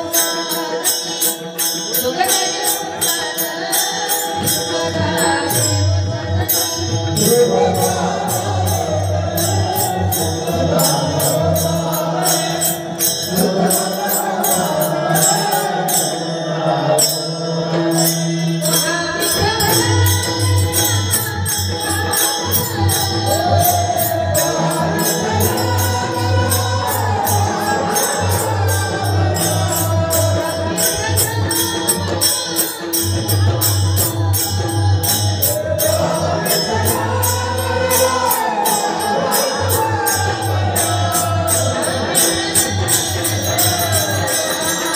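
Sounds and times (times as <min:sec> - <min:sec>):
fast jingling beat: 0:18.0 - 0:44.9.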